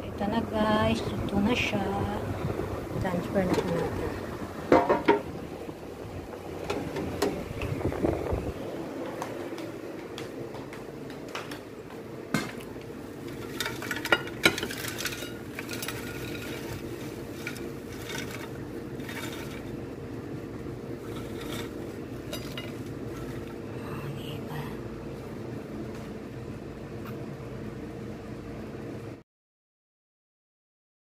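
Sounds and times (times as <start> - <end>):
appliance hum: 0.0 - 29.2
air fryer basket knocking: 4.6 - 5.4, 6.5 - 9.2, 12.3 - 12.7
fries rattling onto a plate: 13.2 - 19.8, 21.0 - 23.6.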